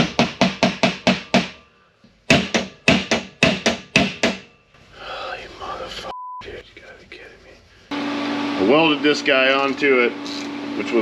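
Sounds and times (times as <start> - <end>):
hammer striking chisel on steel: 0.0 - 1.7, 2.3 - 4.6.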